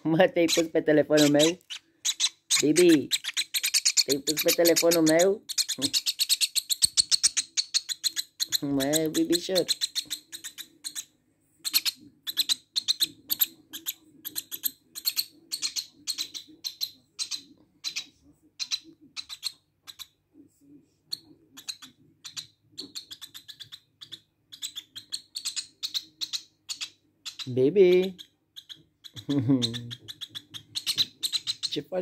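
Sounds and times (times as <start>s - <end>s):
bird chick chirping: 0.0s - 20.1s, 21.1s - 32.0s.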